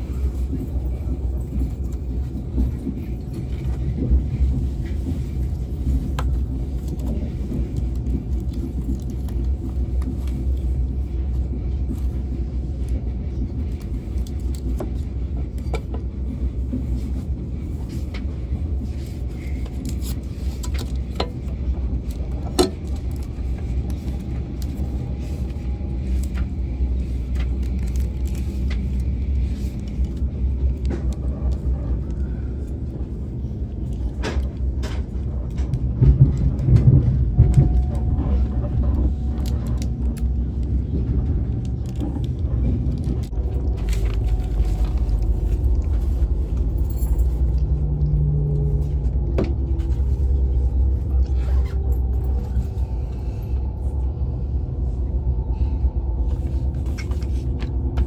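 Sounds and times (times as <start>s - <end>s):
train rumbling inside carriage: 0.0s - 58.0s.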